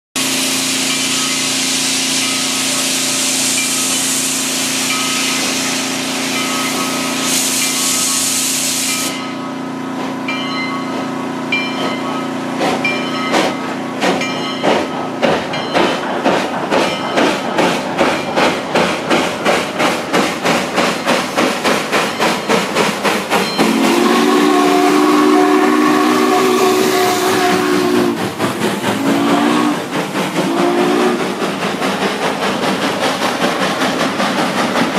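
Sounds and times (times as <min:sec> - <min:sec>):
steam hissing: 0:00.2 - 0:09.4, 0:12.5 - 0:34.9
locomotive chime whistle blasts: 0:00.2 - 0:09.6, 0:23.4 - 0:28.2, 0:29.0 - 0:29.8, 0:30.5 - 0:31.3
steam locomotive exhaust chuffs: 0:00.2 - 0:34.9.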